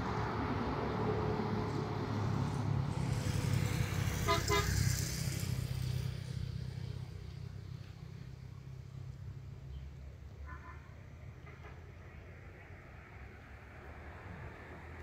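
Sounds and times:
vehicle engine passing by: 0.0 - 9.5
horn toots: 4.2 - 4.8.

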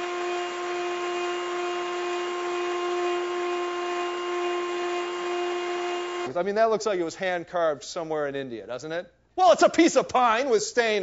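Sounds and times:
carving machine spindle whine: 0.0 - 6.3.

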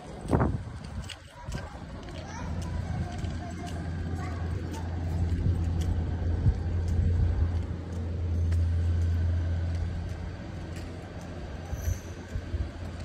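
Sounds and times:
footsteps on stone paving: 0.0 - 13.0
wind buffeting microphone: 0.0 - 13.0.

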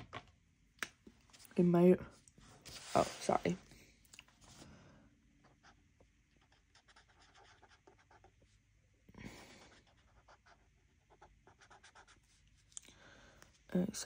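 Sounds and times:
marker scratching on paper: 6.4 - 8.5, 9.7 - 12.4.

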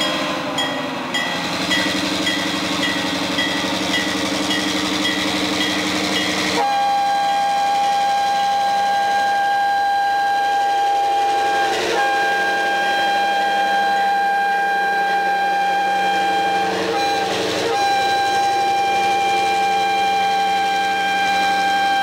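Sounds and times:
bell ringing: 0.0 - 6.6
diesel locomotive running: 0.0 - 22.0
sour locomotive horn: 5.6 - 22.0.

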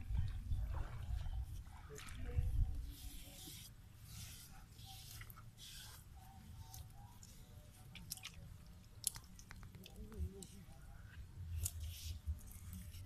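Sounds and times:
wind on microphone: 0.0 - 3.4
hands smoothing wet mud: 0.7 - 13.0.

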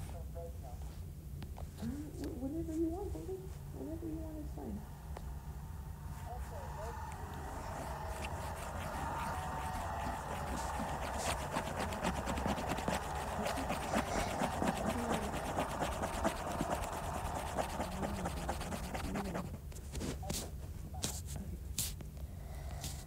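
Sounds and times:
fingers rubbing on touchscreen: 6.2 - 22.0.

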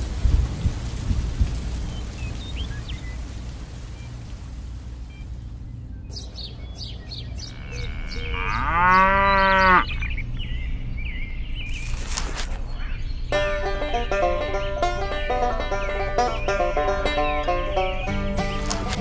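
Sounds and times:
rain hiss: 0.0 - 7.5
birds chirping: 1.7 - 19.0
cow mooing: 7.5 - 10.0
music with plucked notes: 13.3 - 19.0.

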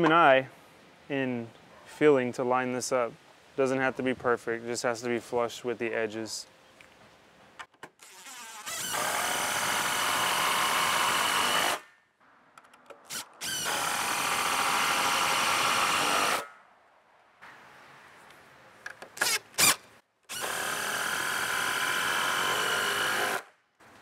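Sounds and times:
cordless driver driving screws: 12.9 - 16.4, 19.0 - 23.4.

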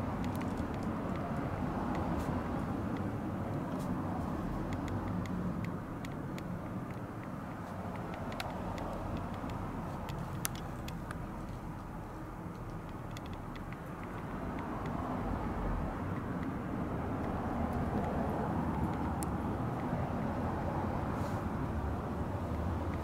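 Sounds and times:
low rumbling background noise: 0.0 - 23.0
faint ticks and clicks: 0.1 - 15.2.

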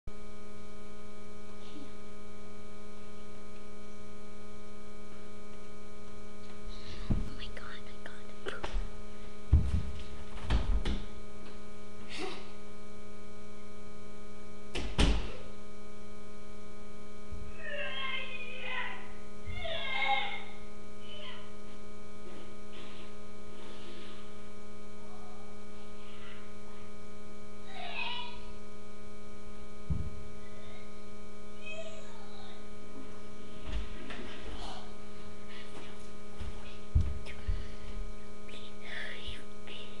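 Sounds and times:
steady electrical hum: 0.1 - 40.0
dull thumps: 9.5 - 11.1.

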